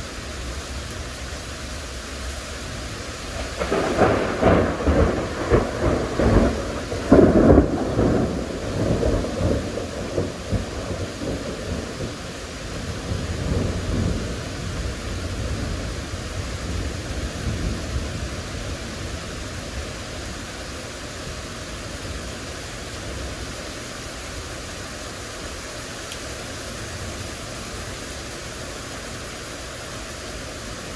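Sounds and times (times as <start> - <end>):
heavy rain hissing: 0.0 - 30.9
thunderclap rumbling: 3.4 - 19.2.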